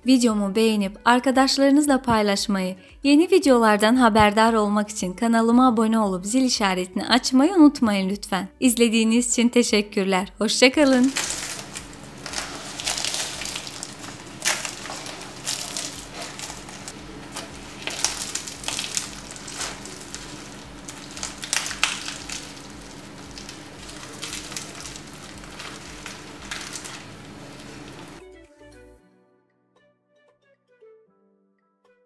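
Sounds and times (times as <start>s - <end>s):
pastry crust crackling as torn: 10.8s - 28.2s.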